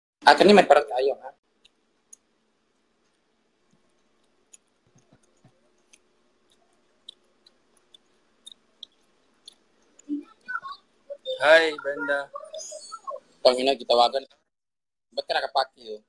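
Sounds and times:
faint clicks and ticks: 0:01.5 - 0:11.3.

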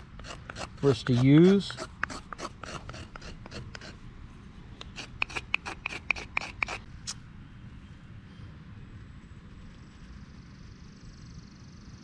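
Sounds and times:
knife scraping dry wood: 0:00.0 - 0:04.0, 0:04.8 - 0:07.2.

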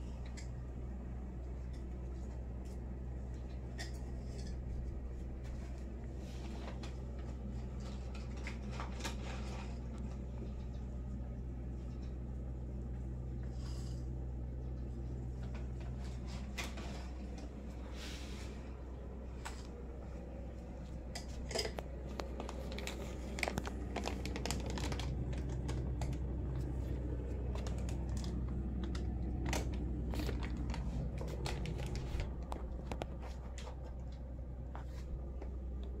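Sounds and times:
low steady hum: 0:00.0 - 0:36.0
plastic bags crinkling: 0:21.4 - 0:26.8, 0:27.4 - 0:33.1.

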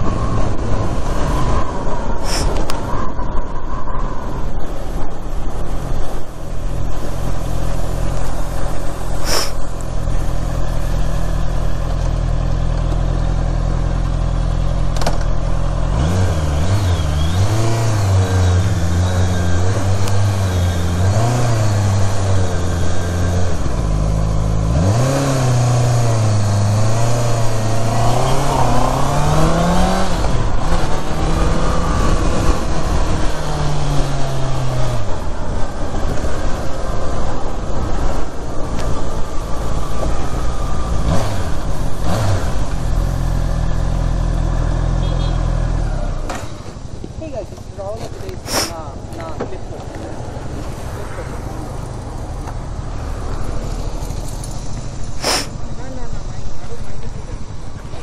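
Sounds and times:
wind noise on microphone: 0:00.0 - 0:10.3, 0:26.0 - 0:43.0
motorcycle engine revving: 0:06.8 - 0:46.8.

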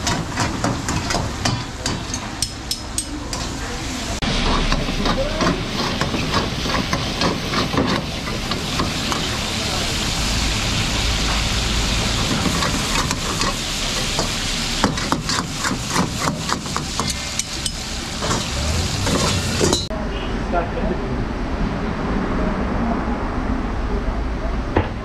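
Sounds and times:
metal ladle scraping pan: 0:00.0 - 0:03.6, 0:04.3 - 0:09.5, 0:11.2 - 0:19.9
meat sizzling in hot oil: 0:03.3 - 0:19.9.

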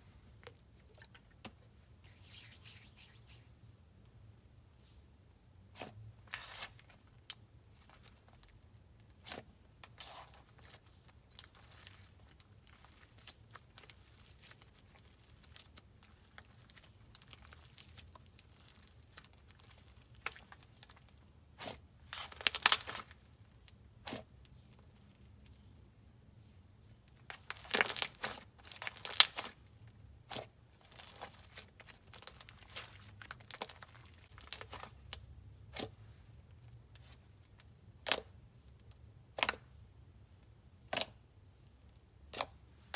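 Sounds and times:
slime crackling and popping: 0:09.2 - 0:23.2, 0:27.3 - 0:29.6.

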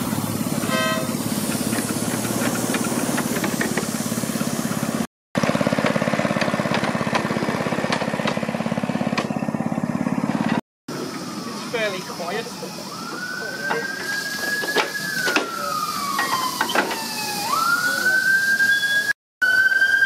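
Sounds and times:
small petrol engine idling: 0:00.0 - 0:12.9.

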